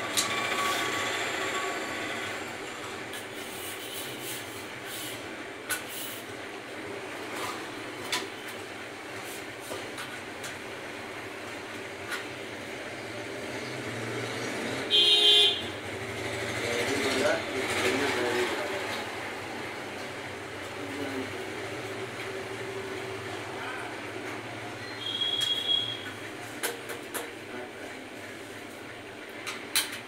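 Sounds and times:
steady background noise: 0.0s - 30.0s
loud buzzing tone: 14.9s - 15.8s.

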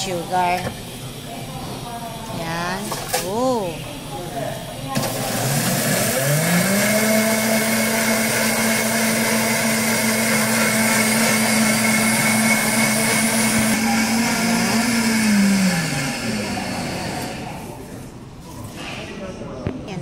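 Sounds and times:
blender motor running: 5.0s - 17.8s.

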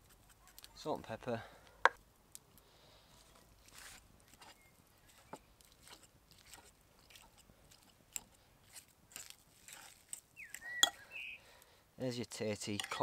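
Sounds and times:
fork mashing potatoes: 3.7s - 11.0s, 12.7s - 13.0s.

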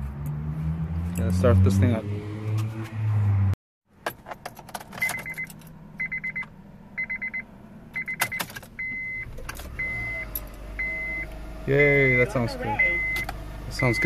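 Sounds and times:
car engine idling hum: 4.0s - 14.0s
key and ignition clicks: 4.3s - 6.5s, 8.0s - 10.6s
dashboard warning chime beeping: 5.0s - 14.0s.

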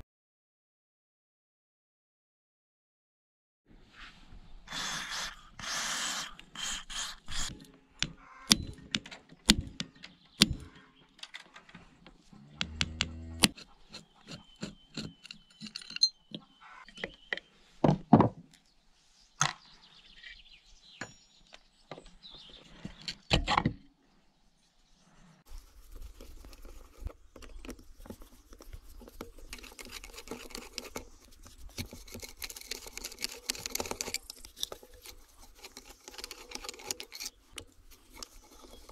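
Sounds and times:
aerosol spray hissing: 4.7s - 7.5s
screwdriver scratchy rustle: 4.7s - 17.3s, 25.5s - 38.9s.

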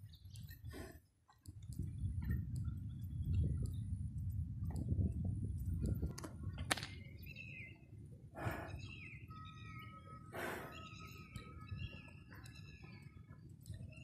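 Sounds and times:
birds chirping: 0.0s - 4.0s, 4.8s - 14.0s
low rumbling wind: 0.0s - 14.0s.

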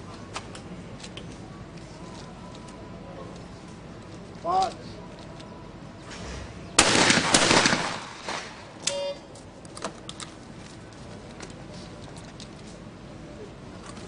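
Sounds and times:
shotgun blast: 6.8s - 8.8s.

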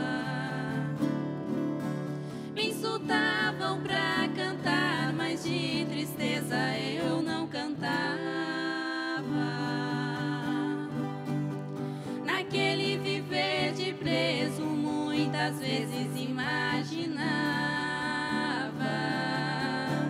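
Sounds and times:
acoustic guitar: 0.0s - 20.0s
women singing with vibrato: 0.0s - 20.0s.

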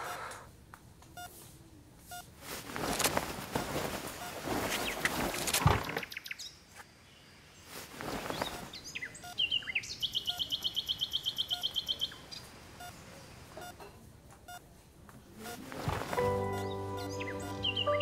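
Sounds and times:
faint beep: 1.2s - 1.4s, 2.0s - 2.3s, 9.1s - 10.5s, 13.6s - 14.7s, 15.4s - 15.7s
birds chirping: 4.5s - 13.7s, 16.2s - 18.0s
bird fast trill: 16.6s - 18.0s.

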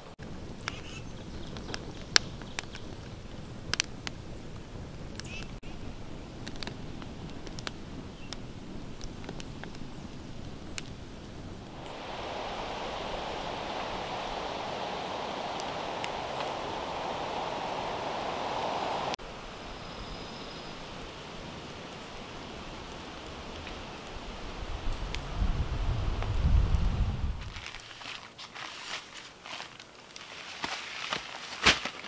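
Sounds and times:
log fire crackling and popping: 0.2s - 19.2s, 20.9s - 25.4s, 27.4s - 32.0s
low rumble: 11.8s - 19.2s.

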